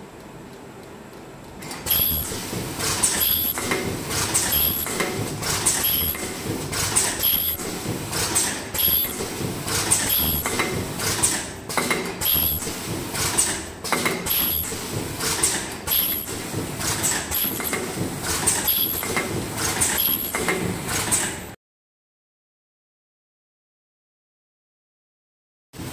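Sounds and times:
steady machine noise: 1.6 - 21.5
mechanical knocks: 1.7 - 21.5.

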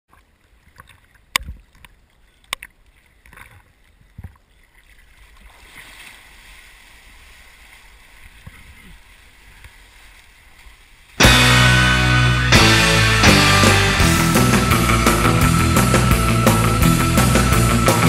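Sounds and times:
rush of water and wind: 0.1 - 11.2
water splashing: 0.1 - 11.3.

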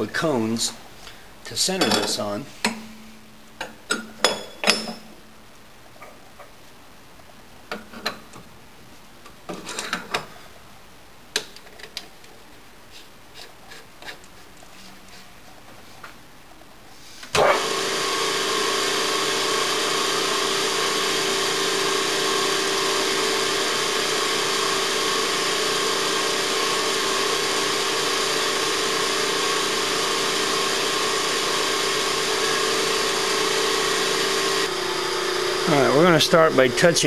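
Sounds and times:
electric machine motor humming: 17.4 - 37.0.

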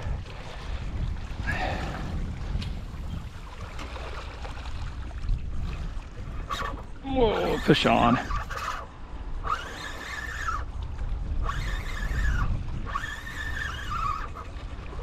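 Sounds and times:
low wind rumble on microphone: 0.0 - 15.0
fishing reel whirring: 6.3 - 15.0.

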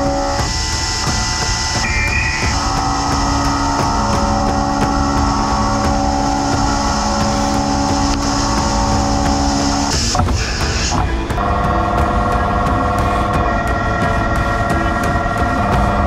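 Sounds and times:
coolant spray hiss: 0.0 - 11.0
milling machine cutting drone: 0.0 - 16.0.

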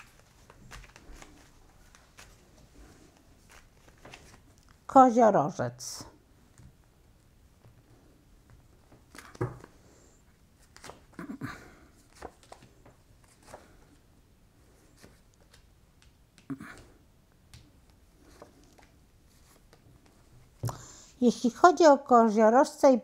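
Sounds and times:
cards slapping and rustling: 0.0 - 4.8, 8.9 - 9.8, 10.6 - 11.2, 12.0 - 14.0.

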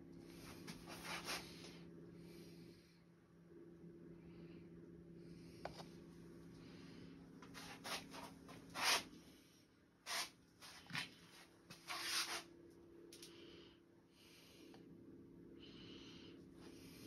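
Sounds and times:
low hum: 0.0 - 7.6
rubs and scuffs on plastic cup: 0.4 - 1.8, 7.4 - 9.1, 10.1 - 12.5.

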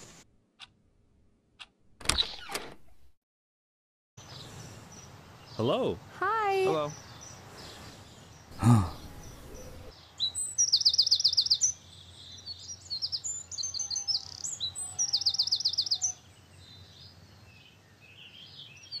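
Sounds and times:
bird chirps: 6.7 - 19.0
songbird trilling: 8.4 - 16.2.

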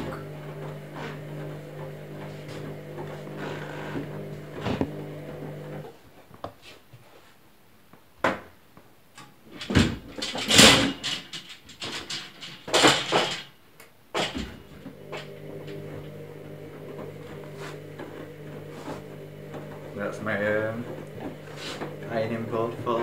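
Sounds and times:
washing machine drum motor hum: 0.0 - 5.8, 14.2 - 23.0
loud knocks and handling noise: 9.6 - 13.5.

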